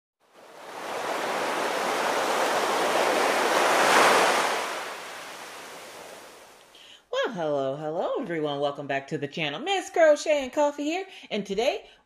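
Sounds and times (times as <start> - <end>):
ocean waves washing onto beach: 0.3 - 6.7.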